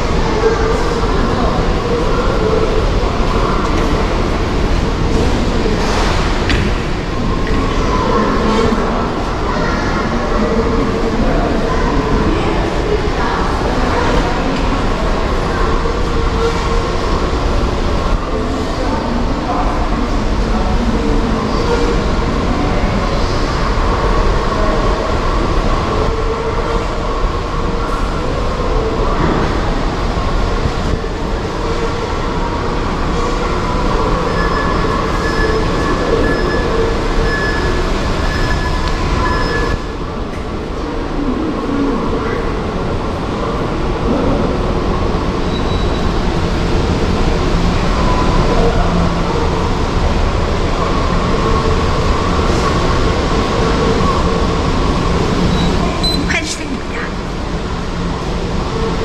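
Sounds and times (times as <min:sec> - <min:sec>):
subway station rumble: 0:00.0 - 0:59.0.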